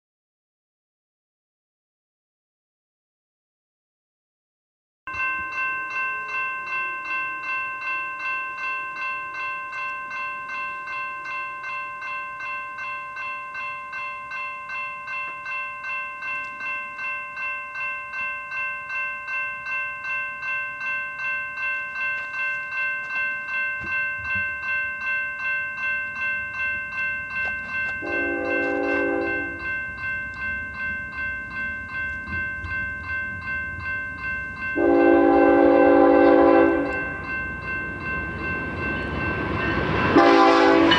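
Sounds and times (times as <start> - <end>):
level crossing warning bell: 5.1 - 40.9
freight train rumble: 23.0 - 40.9
locomotive horn blast: 28.0 - 29.6, 34.8 - 37.0, 40.2 - 40.9.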